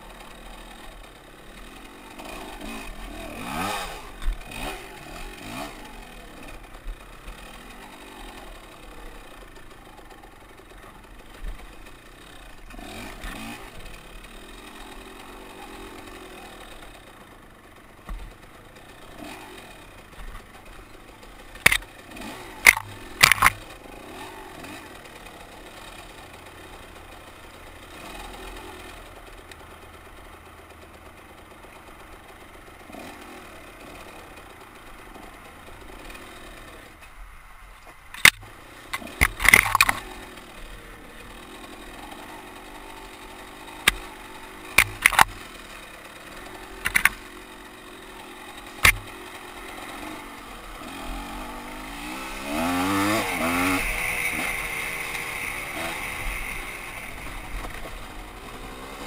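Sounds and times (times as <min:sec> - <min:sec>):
two-stroke motorcycle engine: 0:00.0 - 0:59.0
sharp knocks and clatters: 0:38.2 - 0:40.0, 0:44.8 - 0:45.4, 0:48.8 - 0:49.2.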